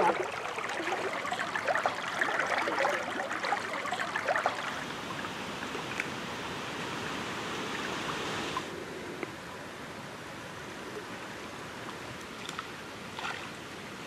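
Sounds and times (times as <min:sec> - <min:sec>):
water trickling: 0:00.0 - 0:06.1.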